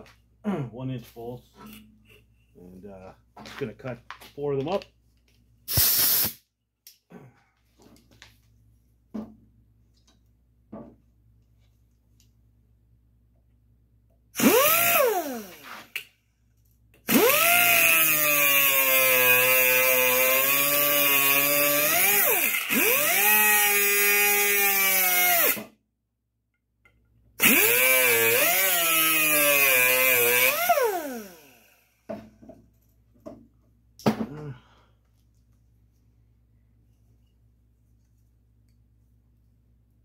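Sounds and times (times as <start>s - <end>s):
angle grinder cutting steel: 14.4s - 16.0s, 17.1s - 25.6s, 27.4s - 31.8s.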